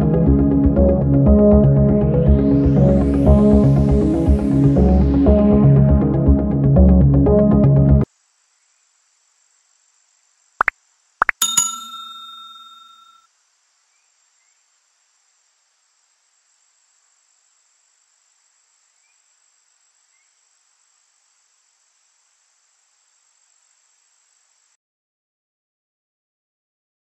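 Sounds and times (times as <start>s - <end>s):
bell ding: 11.4s - 13.2s
insect trill: 11.4s - 24.8s.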